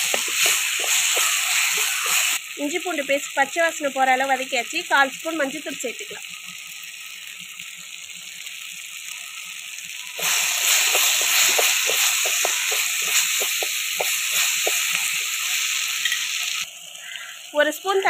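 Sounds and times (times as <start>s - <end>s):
wooden spatula scraping and tapping: 0.0s - 2.4s, 10.7s - 15.3s
vegetables sizzling in hot oil: 0.0s - 18.0s.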